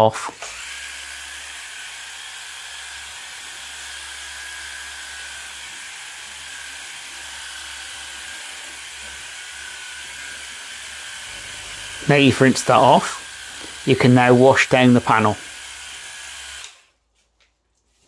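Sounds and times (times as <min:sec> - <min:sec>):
pressure washer spraying water: 0:11.2 - 0:16.7.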